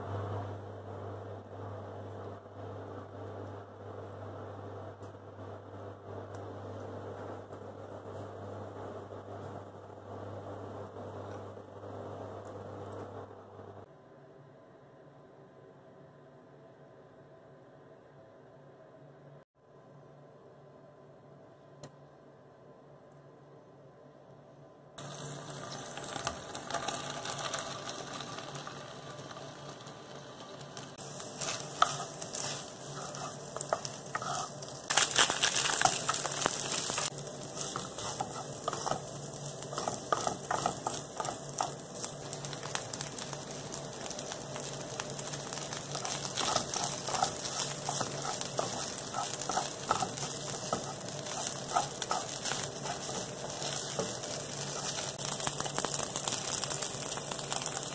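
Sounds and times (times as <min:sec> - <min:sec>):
food sizzling in frying pan: 0:25.0 - 0:57.9
wooden spatula scraping pan: 0:31.0 - 0:42.1, 0:45.9 - 0:55.2.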